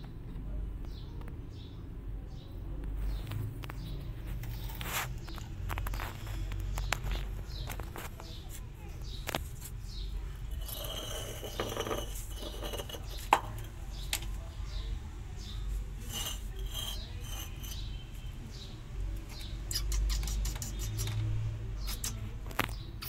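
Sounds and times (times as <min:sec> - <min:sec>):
rasping against stone and plaster: 0:10.4 - 0:13.8, 0:16.0 - 0:17.9.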